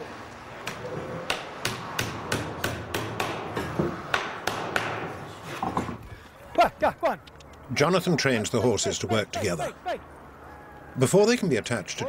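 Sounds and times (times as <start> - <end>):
hammer striking nails into wood: 1.3 - 5.1.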